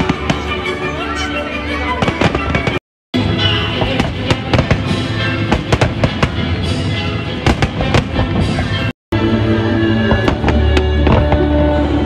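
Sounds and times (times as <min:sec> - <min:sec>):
fireworks bangs and crackles: 0:00.0 - 0:00.8, 0:02.0 - 0:02.8, 0:03.8 - 0:08.9, 0:10.1 - 0:11.8
music playing: 0:00.0 - 0:12.0.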